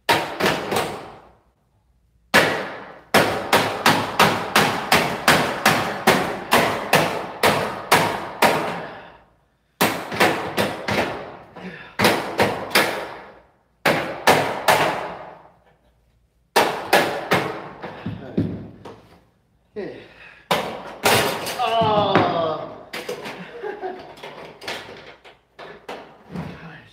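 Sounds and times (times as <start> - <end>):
hammer striking steel frame: 2.3 - 8.9.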